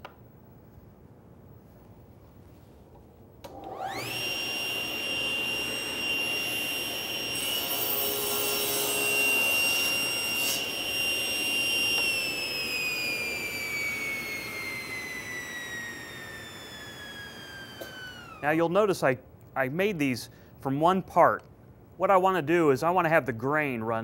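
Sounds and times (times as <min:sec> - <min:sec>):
table saw motor whine: 0:03.5 - 0:18.4
saw blade cutting wood: 0:03.9 - 0:18.4.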